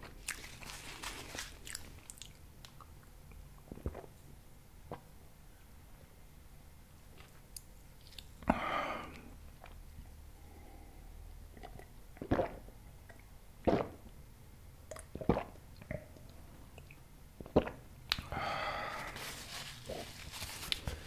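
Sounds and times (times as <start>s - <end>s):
person gulping drink: 3.6s - 4.2s, 11.5s - 14.1s, 14.9s - 18.3s
noisy breathy sound: 18.3s - 19.4s.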